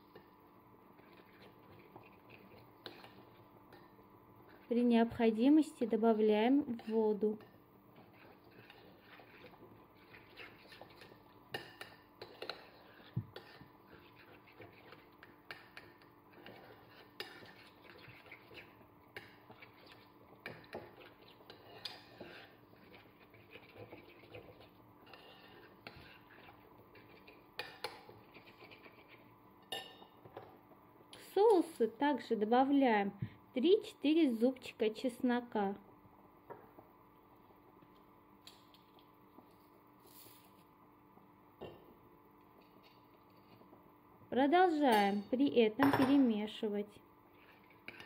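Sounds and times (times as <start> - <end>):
metal spoon scraping ceramic plate: 25.0 - 26.5.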